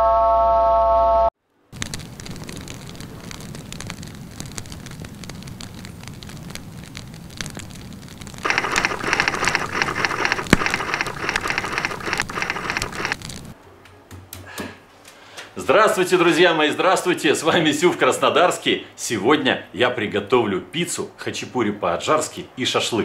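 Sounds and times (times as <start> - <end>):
wood fire crackling: 1.4 - 13.6.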